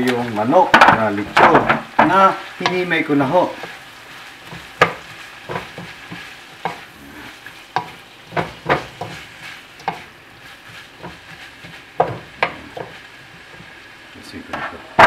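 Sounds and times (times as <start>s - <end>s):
chicken sizzling in pan: 0.0s - 15.0s
wooden spatula scraping pan: 0.6s - 13.8s, 14.4s - 15.0s.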